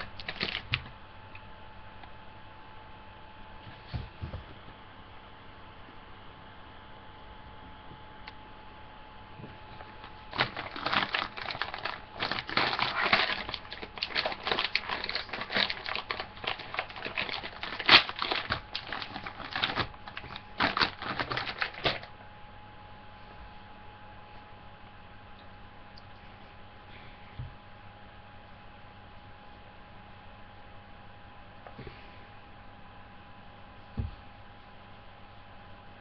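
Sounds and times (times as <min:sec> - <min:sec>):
plastic packet crinkling: 0:00.0 - 0:00.8, 0:09.8 - 0:22.1
sharp plastic crackle: 0:00.0 - 0:00.9, 0:09.8 - 0:22.1.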